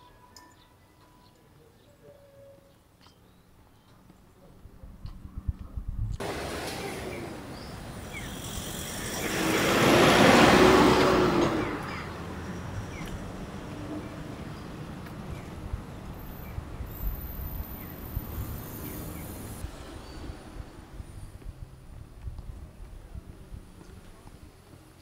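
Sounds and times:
vehicle passing by: 6.2 - 15.7.

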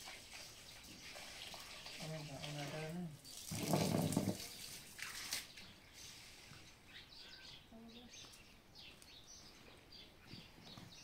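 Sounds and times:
faint bird chirps: 5.6 - 11.0.

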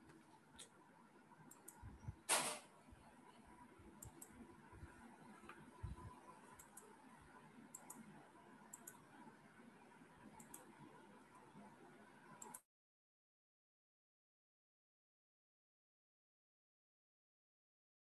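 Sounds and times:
soft clicks in pairs: 1.5 - 1.8, 4.0 - 4.4, 6.5 - 7.0, 7.7 - 8.1, 8.7 - 9.1.

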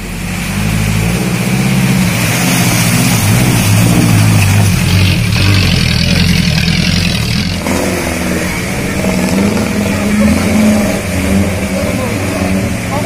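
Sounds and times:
engine revving under load: 0.0 - 13.0.

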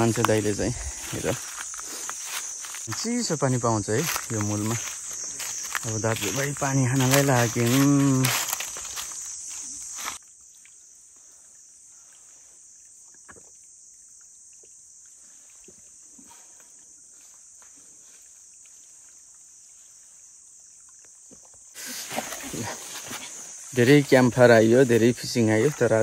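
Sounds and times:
insects droning: 0.0 - 26.0.

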